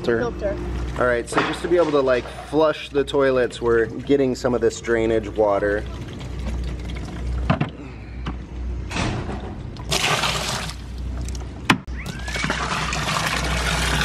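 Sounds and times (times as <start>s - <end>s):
water splashing into plastic bin: 9.8s - 10.9s.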